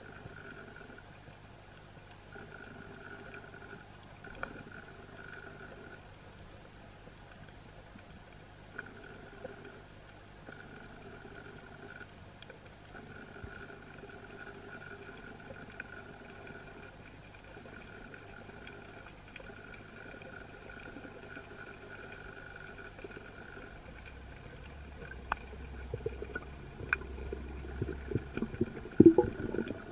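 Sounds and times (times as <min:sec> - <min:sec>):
underwater hum: 0:00.0 - 0:29.9
low underwater rumble: 0:13.1 - 0:29.9
water noise bursts: 0:23.2 - 0:29.9.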